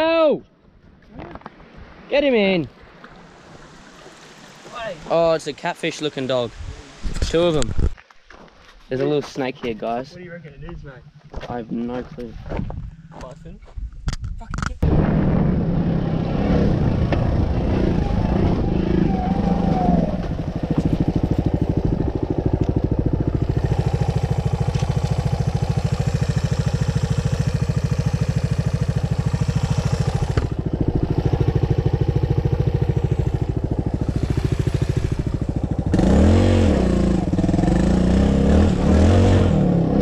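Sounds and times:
dirt bike engine revving: 0:14.8 - 0:40.0.

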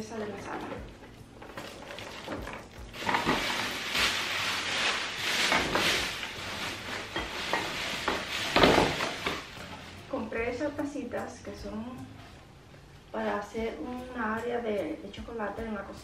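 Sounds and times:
plastic bags rustling: 0:00.1 - 0:10.6.

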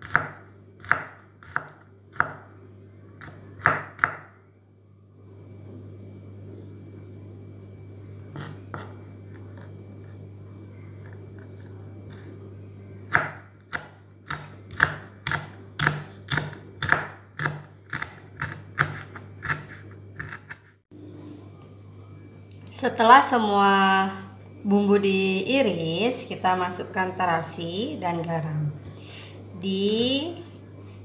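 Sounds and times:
knife chopping on wooden board: 0:00.0 - 0:02.4, 0:03.2 - 0:04.3, 0:13.1 - 0:20.6
low steady hum: 0:00.0 - 0:31.0.

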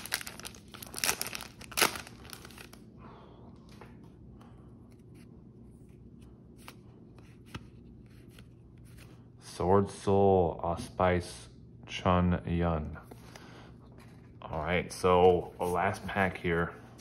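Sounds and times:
cards rustling and ticking: 0:00.0 - 0:02.8
foil wrapper crinkling and tearing: 0:00.0 - 0:02.8.

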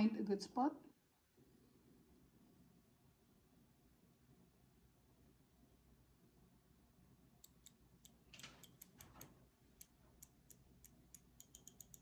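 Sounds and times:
insulin pen clicking: 0:07.4 - 0:12.0.

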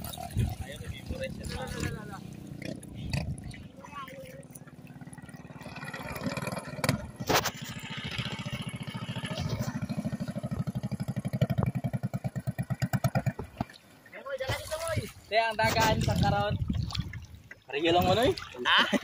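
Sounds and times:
small boat engine running: 0:00.0 - 0:14.1.

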